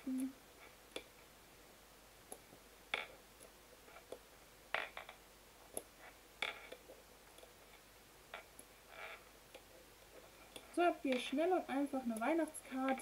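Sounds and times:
soft clicks and taps: 2.2s - 8.8s.

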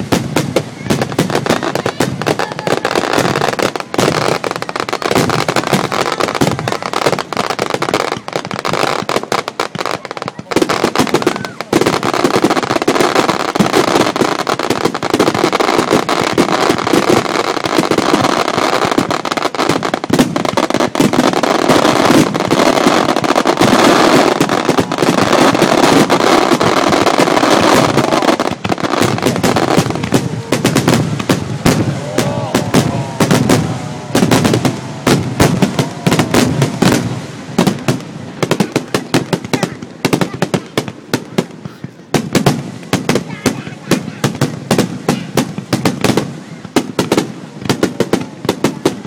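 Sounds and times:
fireworks bangs and crackling: 0.0s - 49.0s.

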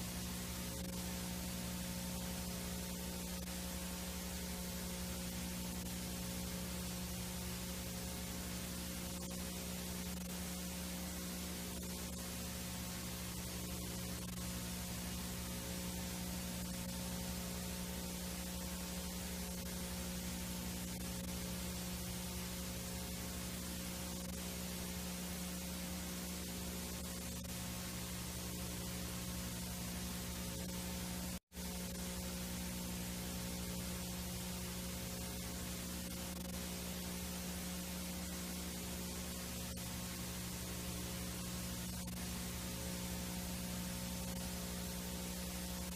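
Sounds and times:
low electrical hum: 0.0s - 45.9s
tape hiss and static: 0.0s - 45.9s.

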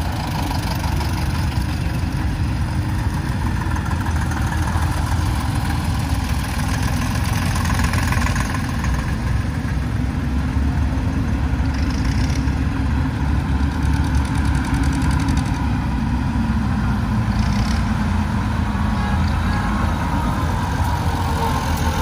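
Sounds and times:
tractor engine idling: 0.0s - 22.0s.

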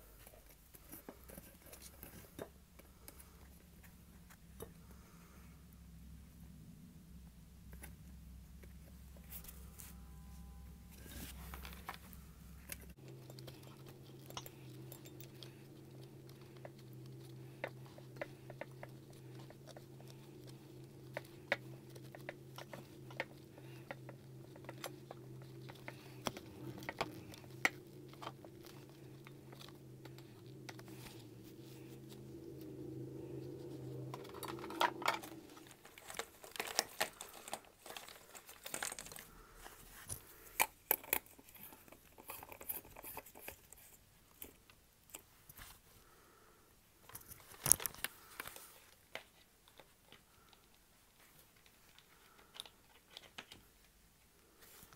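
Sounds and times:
steady low hum: 0.0s - 49.2s.

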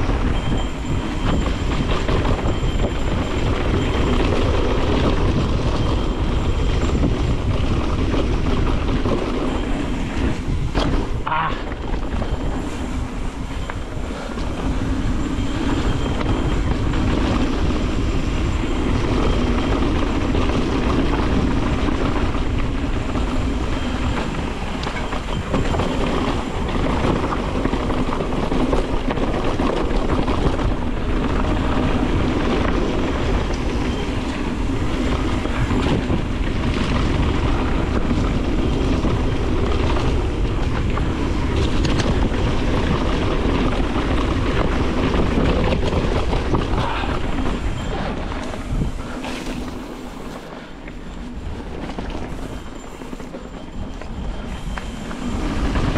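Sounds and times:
bike rattling: 0.0s - 55.9s
tyres rolling on dirt: 0.0s - 55.9s.

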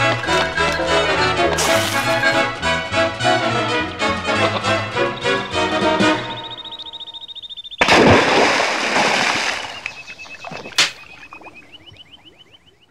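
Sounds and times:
music: 0.0s - 7.2s
sharp crack: 10.8s - 11.0s.

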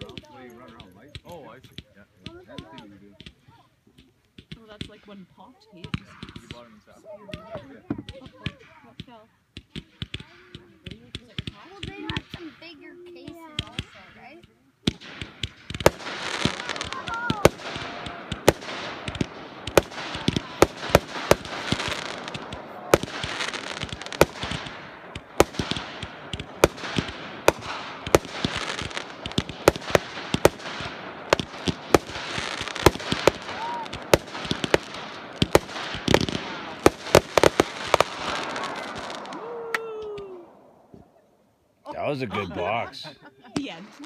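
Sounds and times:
fireworks bangs: 0.0s - 41.2s, 43.5s - 44.0s
fireworks shells hissing: 8.1s - 39.5s.

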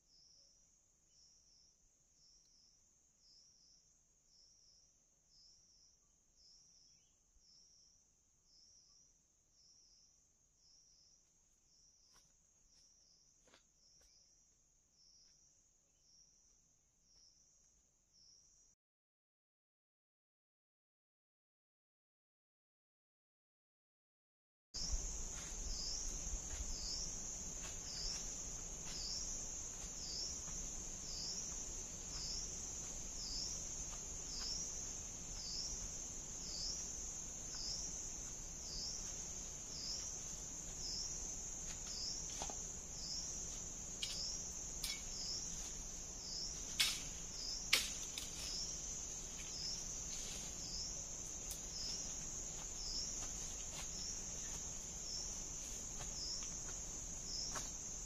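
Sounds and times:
sharp snaps: 47.7s - 48.3s.

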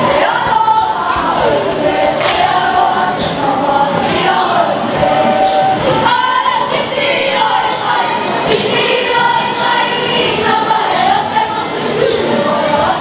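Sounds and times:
children singing in unison: 0.0s - 13.0s.

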